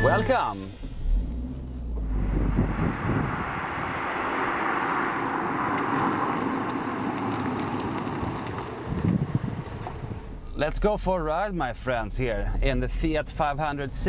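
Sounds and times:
small car driving by: 0.0 - 10.4.

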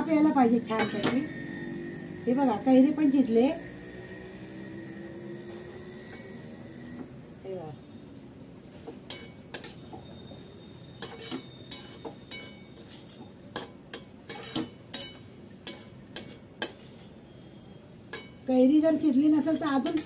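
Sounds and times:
metal spatula scraping a pan: 0.4 - 1.6, 8.8 - 9.9, 10.8 - 17.1, 19.4 - 20.0.

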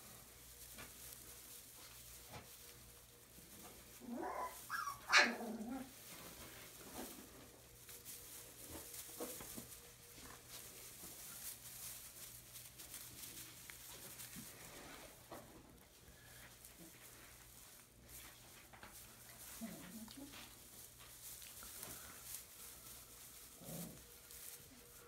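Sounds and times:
puppies scuffling: 0.0 - 25.0
straw rustling: 0.0 - 25.0
puppy yipping: 4.2 - 5.4.

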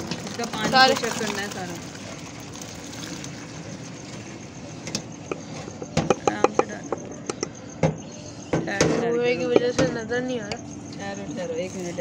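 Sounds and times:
water draining through colander: 0.0 - 7.4
metal pot clinking on colander: 5.3 - 7.0.

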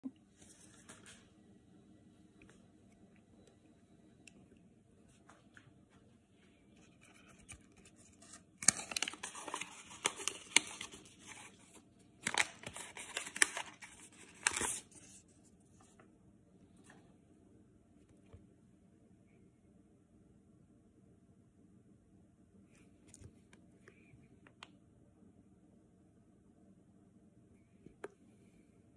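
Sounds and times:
packaging rustling and crinkling: 6.8 - 15.2.

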